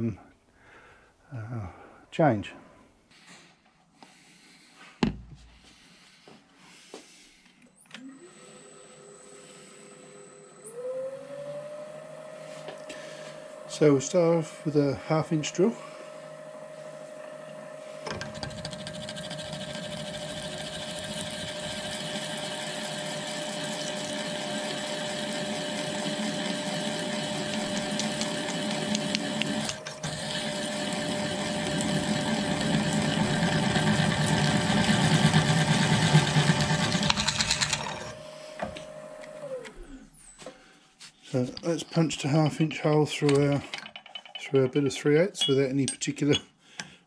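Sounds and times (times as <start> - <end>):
drill press motor whine: 7.7 - 40.5
drill grinding through steel: 18.0 - 38.2.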